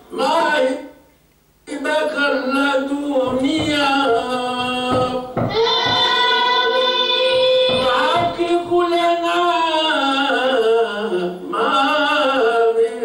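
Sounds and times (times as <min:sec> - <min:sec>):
person chanting into a microphone: 0:01.8 - 0:13.0.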